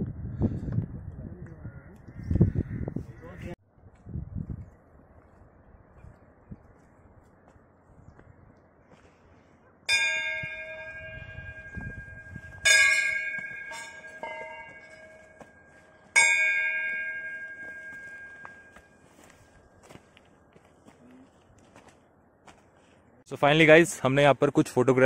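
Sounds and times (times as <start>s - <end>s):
metal bells ringing: 9.9s - 19.3s.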